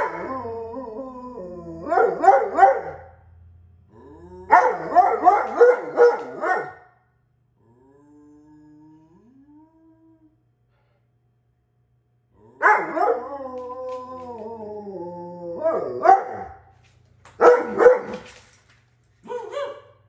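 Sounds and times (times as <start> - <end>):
dog howling: 0.0 - 2.9, 12.4 - 16.6
dog barking calls: 1.9 - 3.1, 4.5 - 7.0, 12.6 - 13.2, 15.9 - 16.6, 17.4 - 18.2, 19.2 - 20.0.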